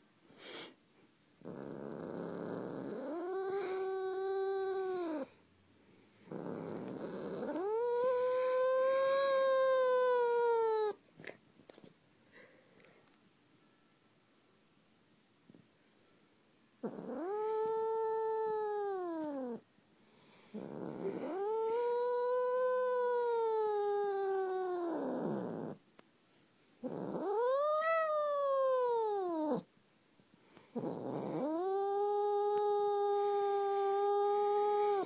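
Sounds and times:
cat yowling: 6.4s - 11.0s, 16.8s - 19.6s, 20.7s - 25.8s, 26.8s - 29.6s, 31.0s - 35.0s.

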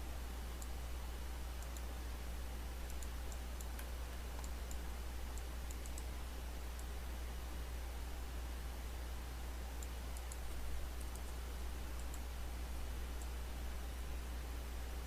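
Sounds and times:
low electrical hum and hiss: 0.0s - 15.0s
computer mouse clicks: 0.6s - 0.8s, 1.6s - 1.9s, 2.8s - 6.9s, 9.8s - 12.3s, 13.1s - 13.4s.

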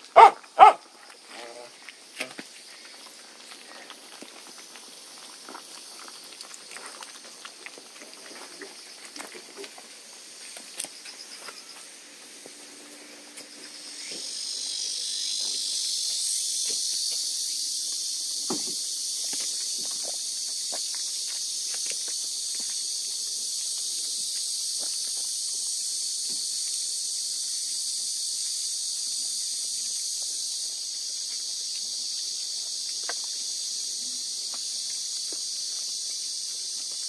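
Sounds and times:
puppies chewing wet kibble: 2.5s - 10.9s
steady high hiss: 9.6s - 37.0s.

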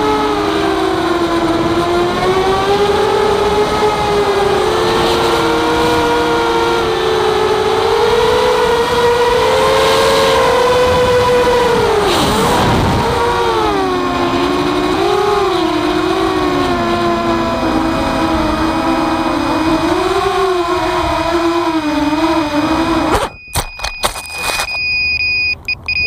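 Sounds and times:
quadcopter motors whining: 0.0s - 24.8s.

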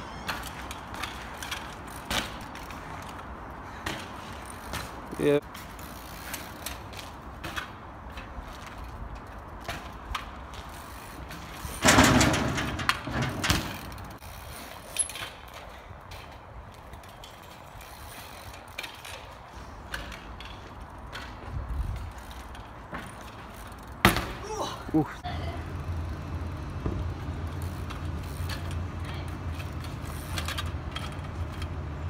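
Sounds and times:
bicycle freewheel ratcheting: 4.3s - 7.6s, 10.1s - 15.9s, 16.8s - 24.0s, 25.6s - 31.8s.

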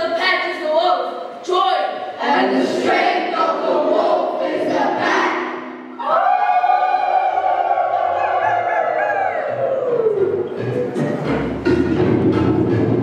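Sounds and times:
children's choir singing: 2.1s - 13.0s
instrumental backing: 9.2s - 13.0s.

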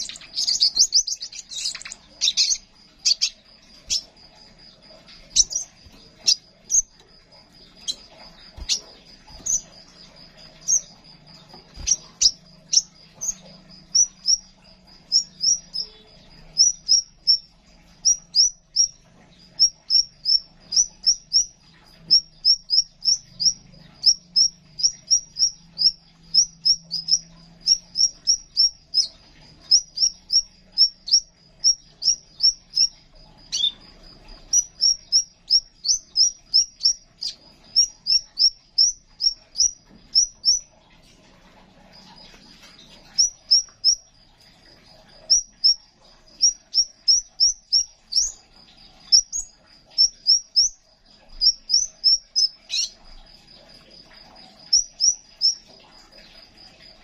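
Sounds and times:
bird sharp high chirps: 0.0s - 4.1s, 5.2s - 7.0s, 7.7s - 14.5s, 15.1s - 17.4s, 22.1s - 33.8s
thin high bird trill: 0.0s - 56.8s.

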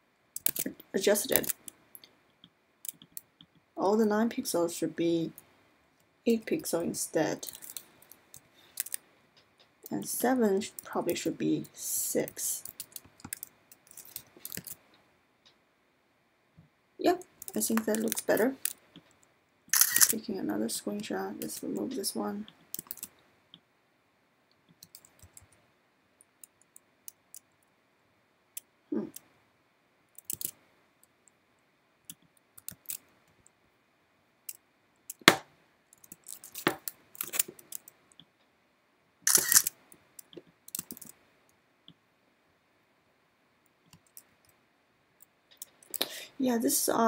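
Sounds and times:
mouse and keyboard clicks: 0.4s - 0.7s, 24.7s - 25.6s, 30.2s - 30.6s.

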